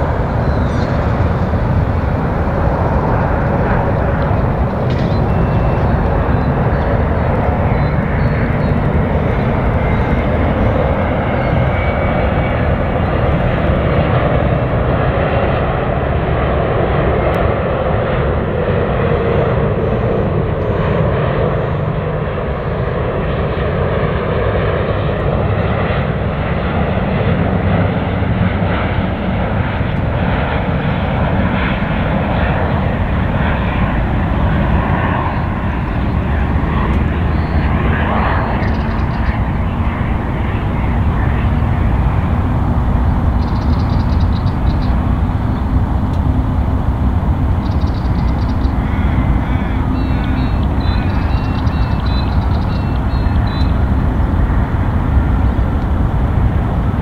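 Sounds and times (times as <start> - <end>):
airliner jet engine noise: 0.0 - 57.0.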